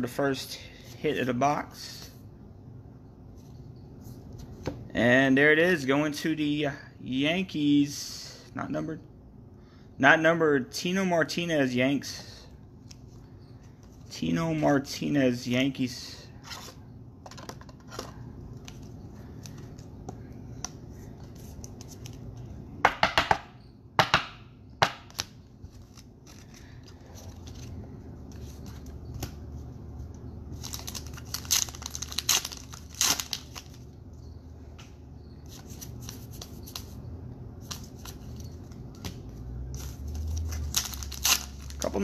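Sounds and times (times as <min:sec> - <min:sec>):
cards rustling and clicking: 0:16.6 - 0:22.5, 0:25.0 - 0:33.8, 0:34.8 - 0:37.0, 0:37.6 - 0:42.0
foil wrappers crinkling and tearing: 0:30.5 - 0:33.8, 0:39.8 - 0:42.0.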